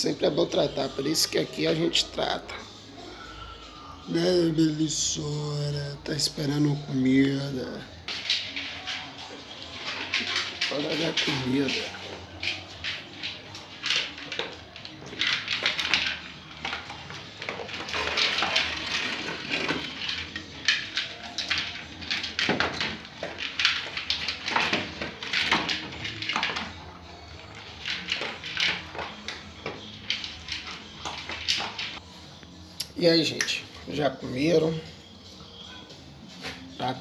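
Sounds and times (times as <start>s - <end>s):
metal bowls clinking and scraping: 4.6s - 37.0s
dogs chewing: 8.2s - 32.0s.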